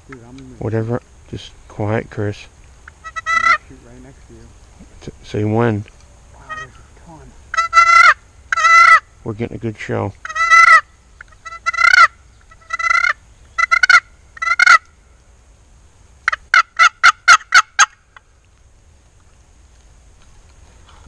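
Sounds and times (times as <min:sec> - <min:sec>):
turkey call yelps: 0:02.9 - 0:03.7, 0:06.4 - 0:09.2, 0:10.2 - 0:15.0, 0:16.2 - 0:18.2.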